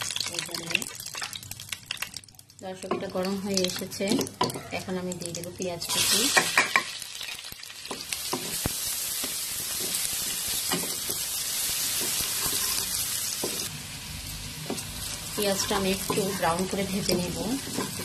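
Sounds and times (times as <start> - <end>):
onions sizzling in fat: 0.0 - 18.0
wooden spatula scraping pot: 15.4 - 18.0.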